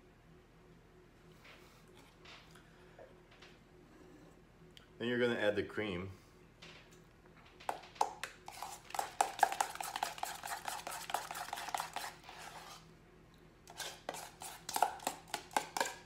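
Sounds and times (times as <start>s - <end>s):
utensil scraping mixing bowl: 8.4s - 12.9s, 13.7s - 16.0s.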